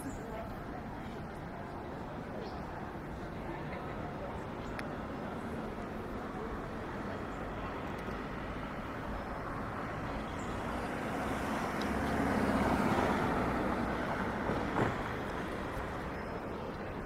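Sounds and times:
city street traffic: 0.0s - 17.0s
vehicle passing close by: 8.3s - 16.2s.

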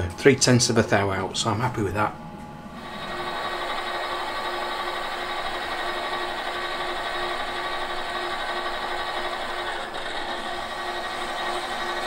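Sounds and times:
metal lathe motor humming: 2.7s - 12.0s.

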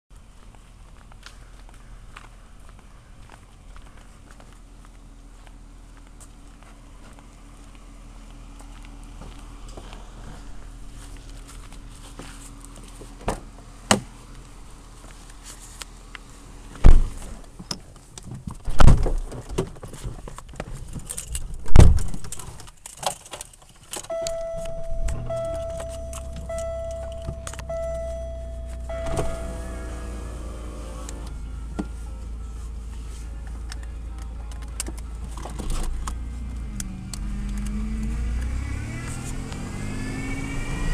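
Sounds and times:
clicks: 24.0s - 29.5s
car warning chime: 24.1s - 33.5s
car engine idling: 24.1s - 38.1s
car door thumps: 29.0s - 29.6s.

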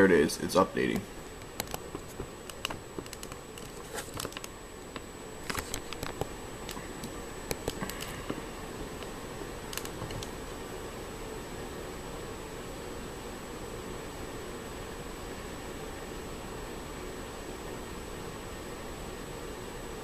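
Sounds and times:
faint hiss: 0.0s - 20.0s
camera handling clicks and rustles: 1.5s - 4.5s, 5.4s - 6.3s.

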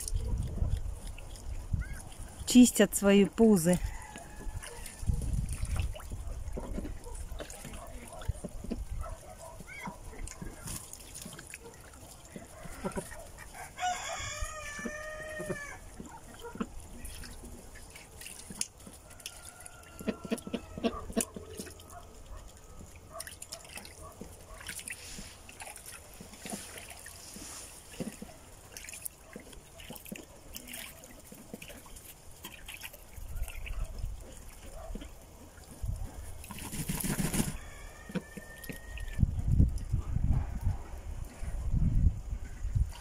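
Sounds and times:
ducks pecking and dabbling: 0.0s - 43.0s
rooster crowing: 3.8s - 5.0s, 13.6s - 15.8s, 19.1s - 20.9s, 37.5s - 39.1s.

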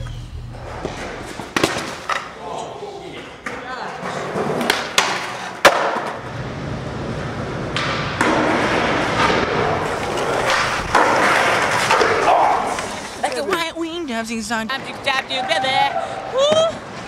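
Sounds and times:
skateboard hitting concrete: 0.8s - 2.3s, 3.4s - 6.2s, 7.2s - 13.7s
skateboard wheels rolling on concrete: 3.2s - 17.0s.

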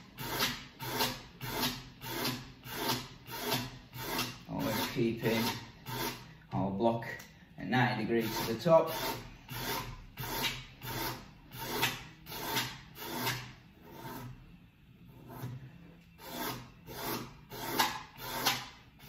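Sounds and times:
sandpaper scraping wood: 0.0s - 6.3s, 8.1s - 14.4s, 16.2s - 18.7s.

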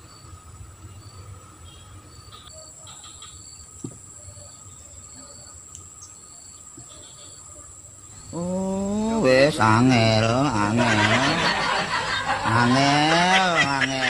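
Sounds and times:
insect chirps: 0.0s - 14.0s
high-pitched insect buzz: 0.9s - 10.4s.

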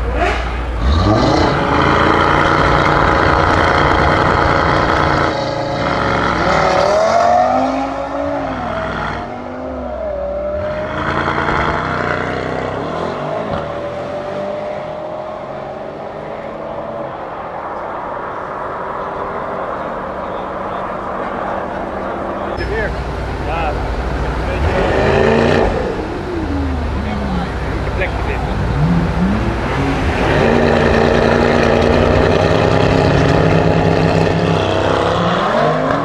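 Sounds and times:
car engine revving and accelerating: 0.0s - 17.3s, 23.6s - 36.0s.

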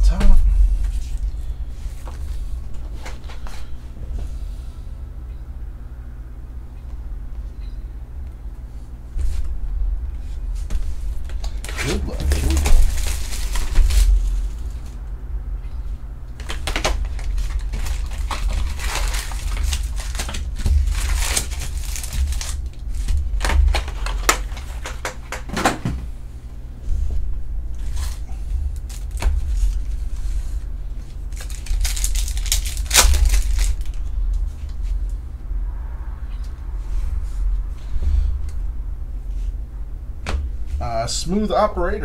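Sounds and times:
steady low hum: 0.0s - 42.0s
foil wrappers crinkling: 10.9s - 15.0s, 16.3s - 25.5s, 27.7s - 35.0s
packs tearing open: 11.3s - 14.3s, 16.4s - 25.4s, 31.3s - 34.0s.

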